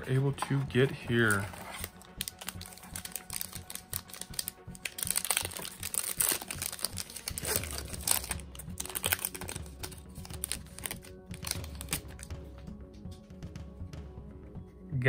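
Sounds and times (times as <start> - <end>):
foil wrapper crinkling: 1.2 - 12.3.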